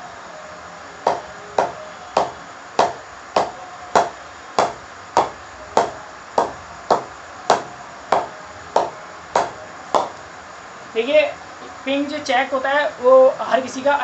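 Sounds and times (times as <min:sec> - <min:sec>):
ball knocking on cricket bat: 0:01.1 - 0:10.2.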